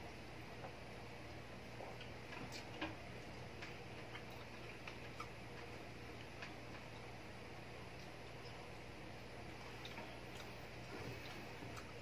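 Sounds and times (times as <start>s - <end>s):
eating clicks and smacks: 1.8s - 7.1s, 9.8s - 10.6s.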